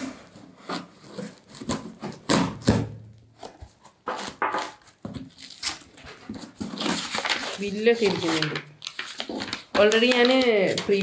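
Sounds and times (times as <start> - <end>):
cardboard box being cut open: 0.0 - 4.4.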